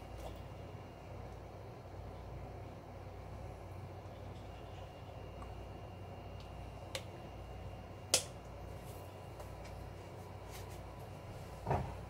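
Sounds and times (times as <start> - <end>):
low kitchen hum: 0.0 - 12.0.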